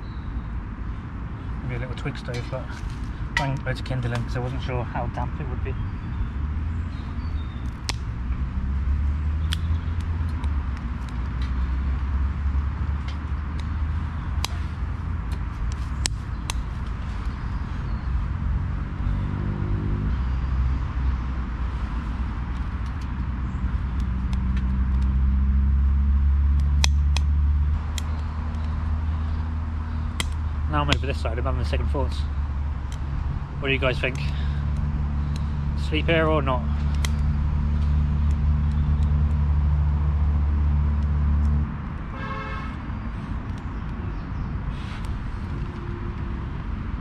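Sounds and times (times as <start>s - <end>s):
road traffic rumble: 0.0s - 47.0s
vehicle engine pulling away: 17.2s - 21.4s, 23.2s - 41.7s
faint clicks: 34.0s - 35.6s.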